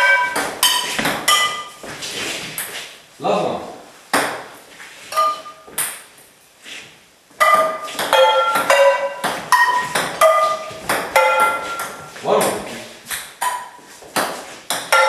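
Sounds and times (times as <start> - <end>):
ball striking frying pans: 0.0 - 1.8, 5.1 - 6.1, 7.4 - 12.6, 13.2 - 15.0.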